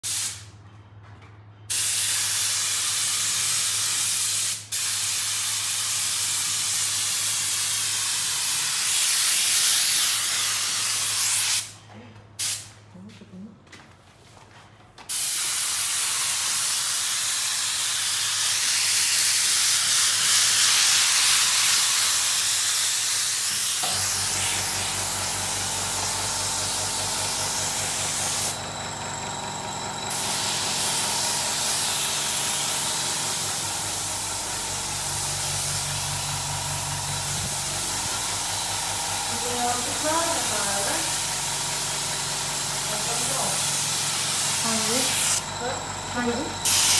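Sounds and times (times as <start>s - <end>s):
paint spray gun hissing: 0.0s - 0.4s, 1.7s - 11.8s, 15.1s - 28.6s, 30.1s - 45.4s, 46.2s - 46.9s
air compressor humming: 15.1s - 46.9s.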